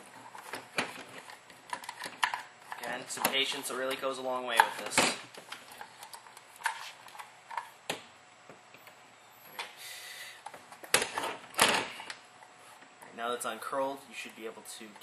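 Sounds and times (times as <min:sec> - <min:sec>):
plastic parts clicking and knocking: 0:00.1 - 0:08.0.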